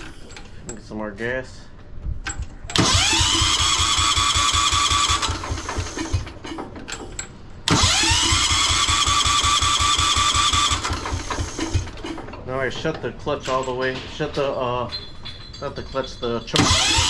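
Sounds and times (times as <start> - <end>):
engine cranking with starter whine: 2.3 - 12.9, 16.5 - 17.0.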